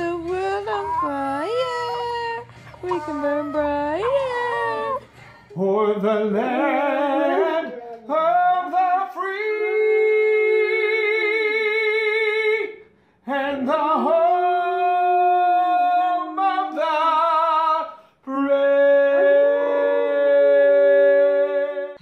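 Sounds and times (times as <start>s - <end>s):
dog howling: 0.0s - 5.1s, 19.1s - 20.8s.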